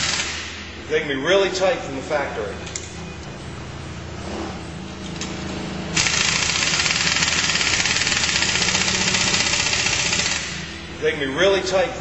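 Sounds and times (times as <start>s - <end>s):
impact wrench hammering on a nut: 6.0s - 10.6s.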